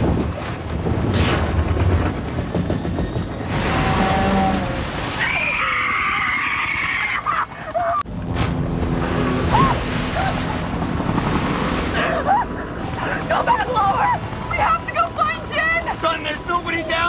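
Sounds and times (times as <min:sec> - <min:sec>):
helicopter engine: 0:08.1 - 0:17.0.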